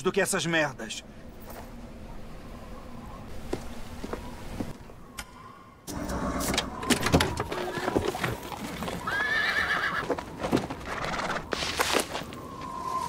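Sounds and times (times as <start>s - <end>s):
horse whinnying: 7.3s - 10.1s, 10.8s - 11.5s.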